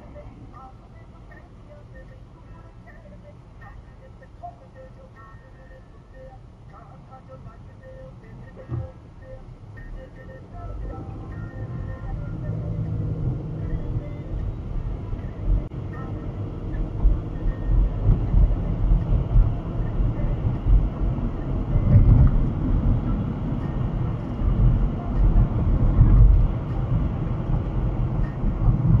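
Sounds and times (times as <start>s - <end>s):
low rumble of moving vehicles: 0.0s - 29.0s
streetcar running on rails: 6.2s - 29.0s.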